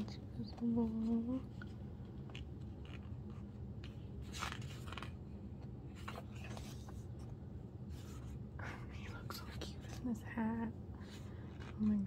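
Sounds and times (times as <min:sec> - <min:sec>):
pages rustling: 0:00.0 - 0:08.4, 0:11.0 - 0:12.0.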